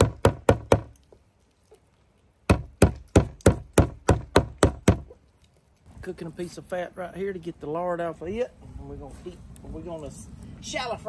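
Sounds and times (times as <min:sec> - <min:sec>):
meat mallet pounding meat: 0:00.0 - 0:00.9, 0:02.5 - 0:05.1.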